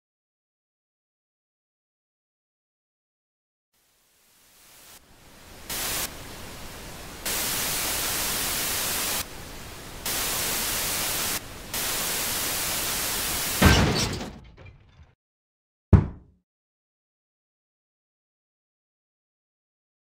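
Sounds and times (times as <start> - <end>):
television static hiss: 3.8 - 13.6
loud thud: 13.6 - 14.9, 16.0 - 16.3.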